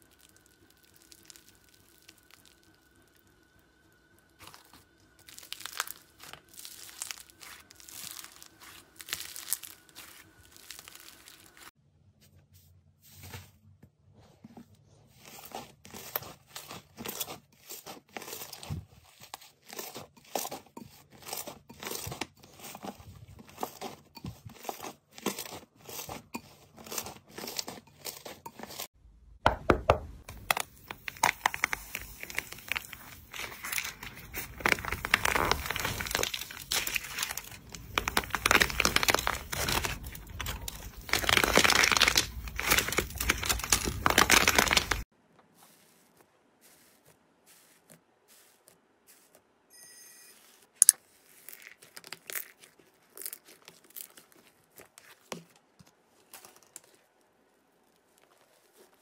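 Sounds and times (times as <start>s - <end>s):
clay crust cracking and crunching: 0.0s - 3.3s, 4.1s - 11.8s, 15.1s - 49.5s, 50.7s - 59.0s
slime stretched and squeezed: 4.4s - 11.7s, 30.3s - 45.1s.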